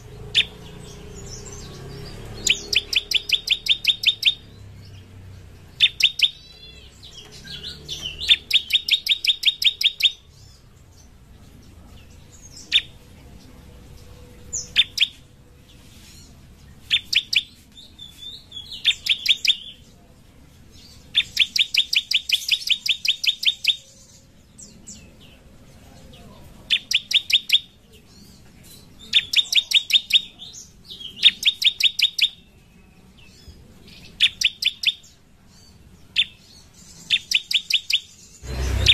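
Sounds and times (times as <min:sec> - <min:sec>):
bird singing rapid high notes: 0:00.1 - 0:11.1, 0:14.3 - 0:15.3, 0:16.2 - 0:19.8, 0:20.8 - 0:25.0, 0:26.7 - 0:27.9, 0:29.1 - 0:33.4, 0:34.0 - 0:38.9.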